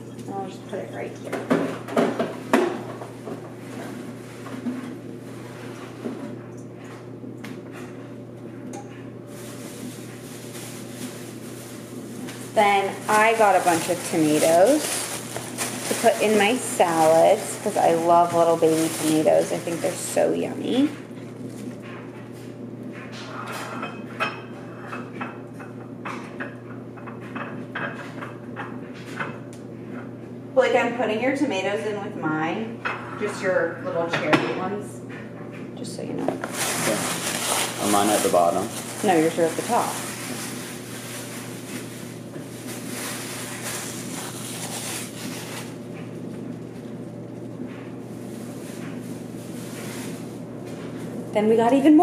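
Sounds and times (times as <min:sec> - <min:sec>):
steady low hum: 0:00.0 - 0:52.0
plastic packaging rustling: 0:09.3 - 0:21.9, 0:36.4 - 0:51.2.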